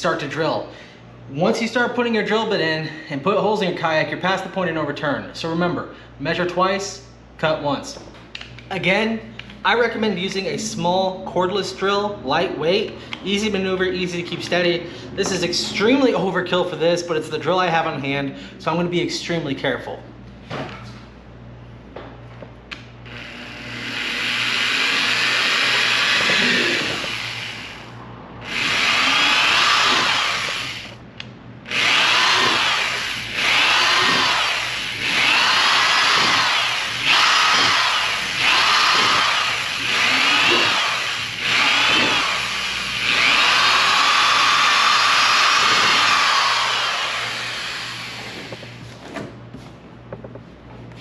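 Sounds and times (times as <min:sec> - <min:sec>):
electric drill whining: 0:23.0 - 0:31.0, 0:31.7 - 0:48.9.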